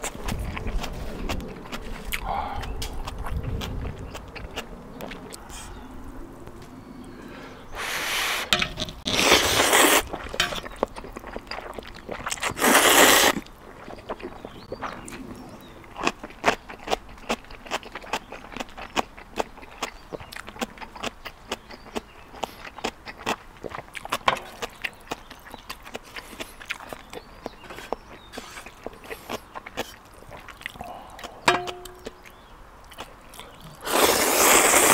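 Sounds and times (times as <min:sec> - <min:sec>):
close-up wet chewing: 0:00.0 - 0:06.0, 0:08.8 - 0:34.9
noodles being slurped: 0:07.8 - 0:14.6, 0:33.8 - 0:34.9.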